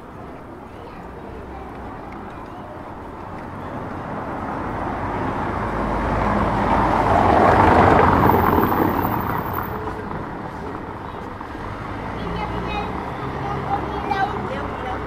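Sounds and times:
vehicle driving past: 4.0s - 15.0s.

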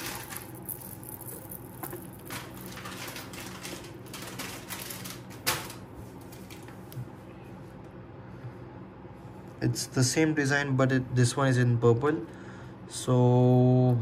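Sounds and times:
necklace clinking and rustling: 0.0s - 3.7s.

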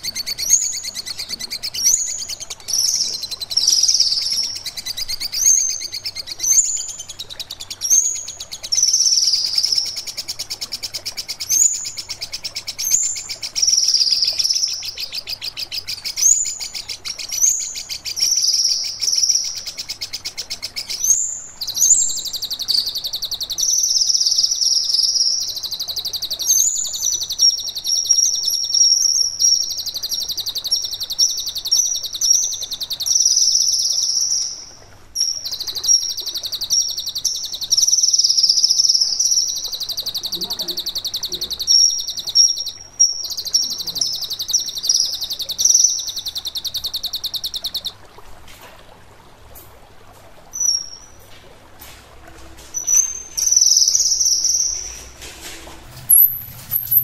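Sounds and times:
songbird singing rapid trills: 0.0s - 48.0s, 50.6s - 51.2s, 52.8s - 55.1s.

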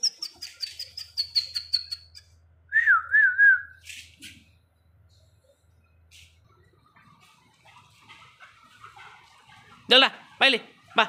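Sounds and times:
bird chirping: 0.0s - 2.4s.

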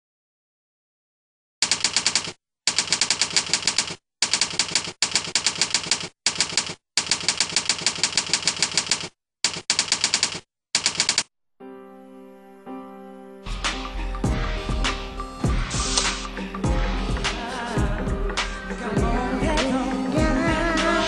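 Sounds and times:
typewriter keystrokes clattering: 1.6s - 11.3s
soft music: 11.6s - 21.0s.

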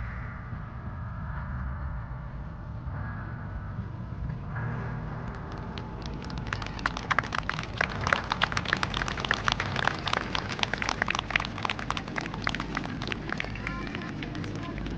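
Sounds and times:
low crowd rumble: 0.0s - 14.9s
crowd clapping: 5.2s - 14.9s.

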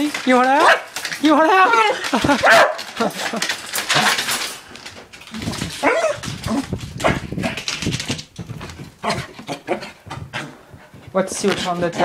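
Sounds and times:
dog barking: 0.6s - 0.9s, 2.4s - 2.8s, 5.8s - 6.2s
dog whining: 5.8s - 7.2s.

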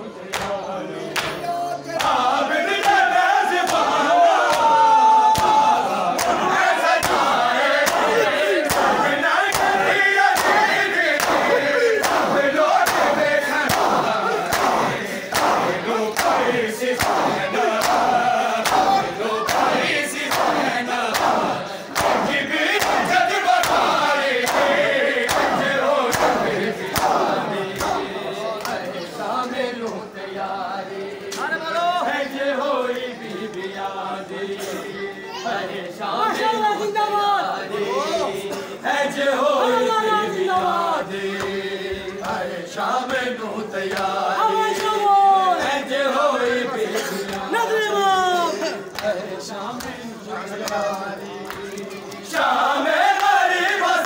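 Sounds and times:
men chanting in unison: 0.0s - 54.0s
palms slapping bare chests: 7.0s - 28.9s.

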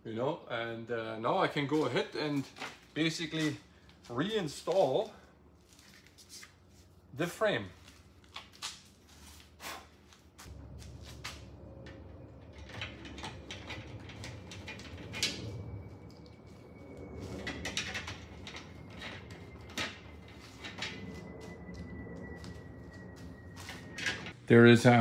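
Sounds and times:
frame knocking and rattling: 11.5s - 15.8s.

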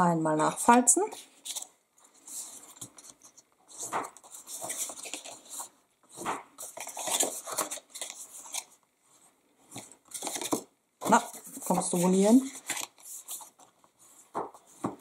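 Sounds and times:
card rustling: 1.1s - 8.8s, 9.7s - 15.0s.

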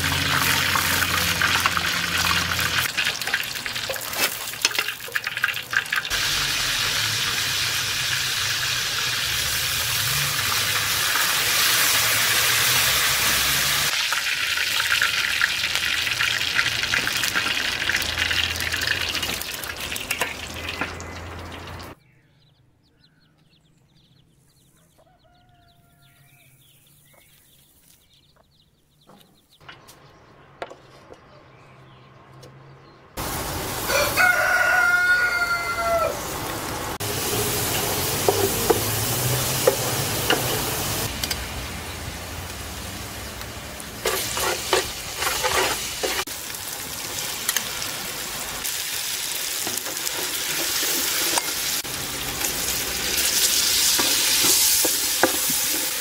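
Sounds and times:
onions sizzling in hot oil: 0.0s - 22.0s, 33.2s - 56.0s
rooster crowing: 24.8s - 26.6s, 33.8s - 36.6s
wooden spoon scraping a pot: 44.0s - 46.3s.

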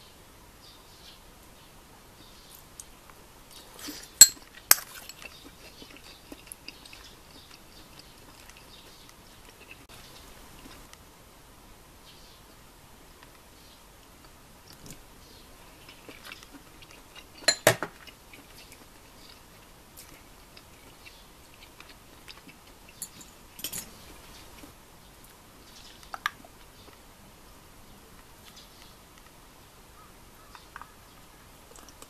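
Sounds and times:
quiet chewing: 2.2s - 11.0s, 14.0s - 27.1s, 30.0s - 32.0s
metal fork clinking on dishes: 4.2s - 5.3s, 17.4s - 17.9s, 23.0s - 23.9s.

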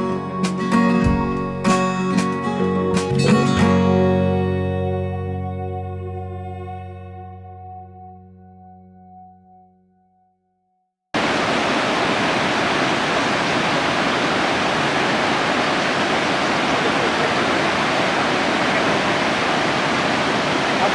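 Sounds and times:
river rushing: 11.2s - 20.9s.

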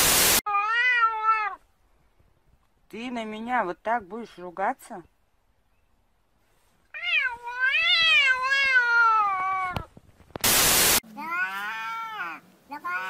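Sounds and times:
loud static hiss: 0.0s - 0.4s, 10.2s - 11.0s
cat meowing: 0.5s - 1.6s, 6.9s - 9.9s, 11.1s - 13.0s.

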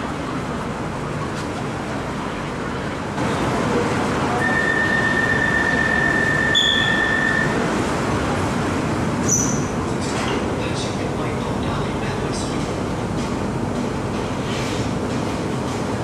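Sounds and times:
train cabin noise: 0.0s - 16.0s
train door warning beep: 4.3s - 7.7s
short higher beep: 4.4s - 7.6s.

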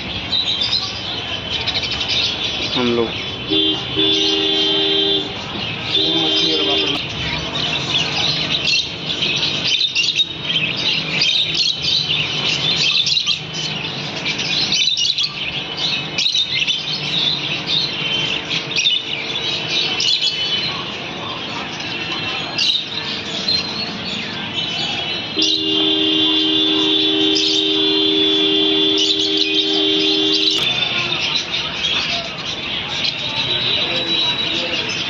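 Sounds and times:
caged birds chattering and chirping: 0.0s - 35.0s.

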